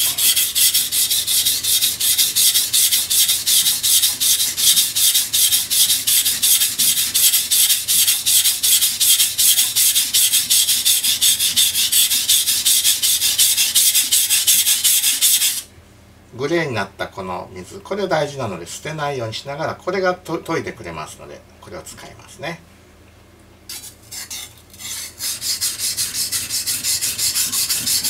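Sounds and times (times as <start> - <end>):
knife scraping on whetstone: 0.0 - 15.6, 23.7 - 28.0.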